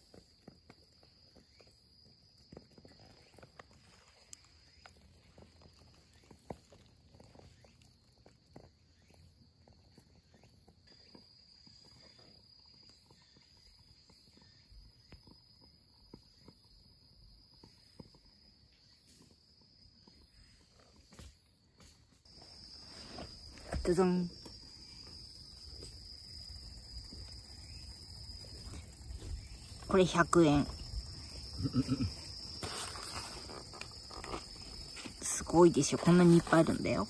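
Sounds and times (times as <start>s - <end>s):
small ticks and clicks: 0.0s - 19.2s
faint high insect drone: 0.0s - 37.0s.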